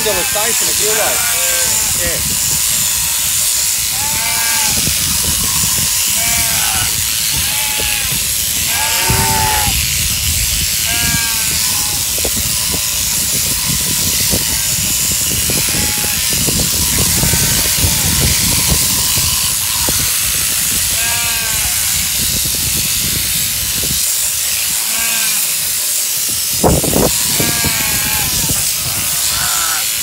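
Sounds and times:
sheep bleating: 0.0 - 2.0, 3.8 - 9.8, 10.8 - 12.0, 17.0 - 22.0, 24.5 - 25.6, 27.1 - 30.0.

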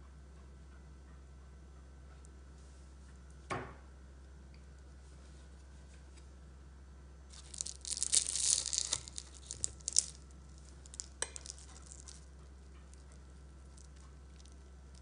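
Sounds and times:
pastry crackling and crunching: 7.3 - 15.0.

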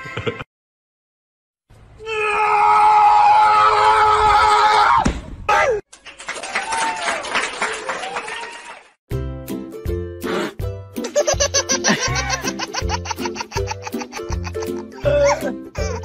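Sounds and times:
screaming cries: 2.0 - 5.8.

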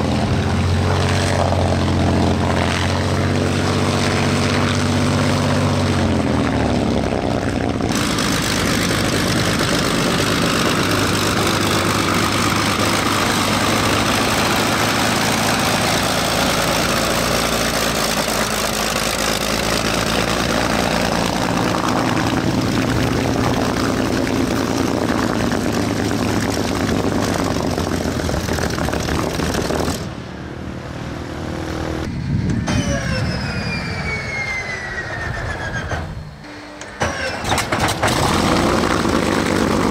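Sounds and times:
whine falling in pitch: 32.0 - 37.3.

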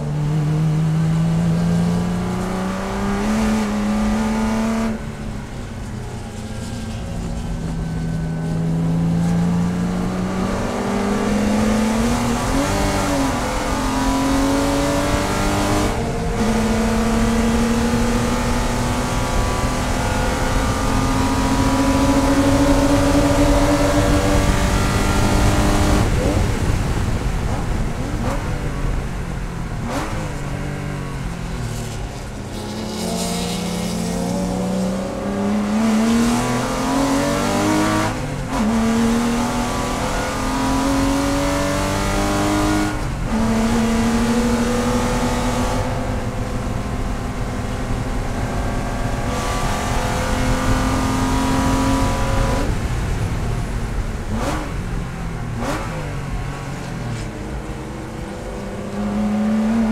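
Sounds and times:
race car engine revving: 0.0 - 59.9.

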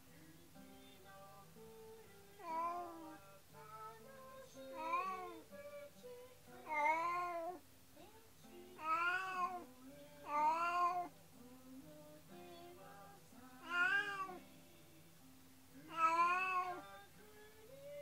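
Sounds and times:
quiet background music: 0.0 - 18.0
cat meowing: 8.8 - 9.6, 10.3 - 11.1, 13.6 - 14.4, 15.9 - 16.8.

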